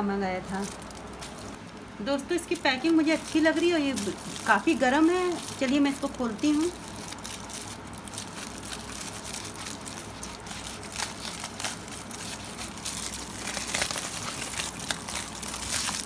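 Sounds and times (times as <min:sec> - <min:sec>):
aluminium foil crinkling: 0:00.2 - 0:16.0.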